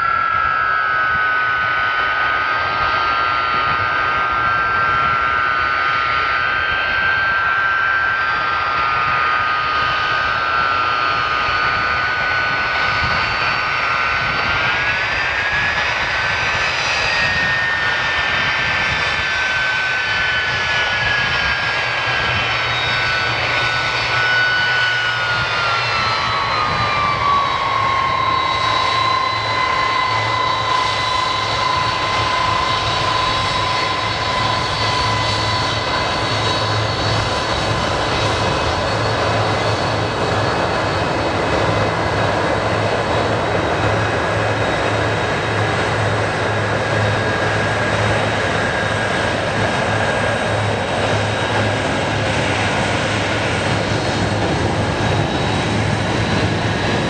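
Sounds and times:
jet engines at takeoff power: 0.0 - 57.0.

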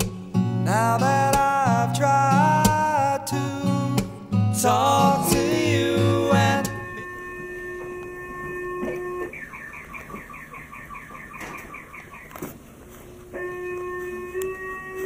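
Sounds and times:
steady multi-pitch alert tone: 4.6 - 12.3.

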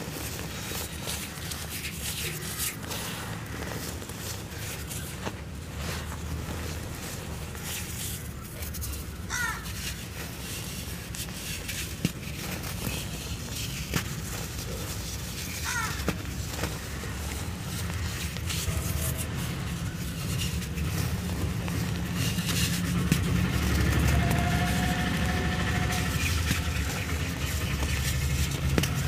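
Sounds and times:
powder sifting: 0.0 - 29.0
crow cawing: 9.3 - 9.8, 15.5 - 16.1.

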